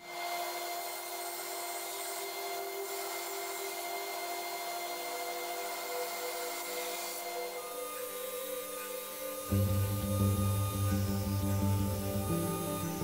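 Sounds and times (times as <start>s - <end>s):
grinder machine whine: 0.0s - 13.0s.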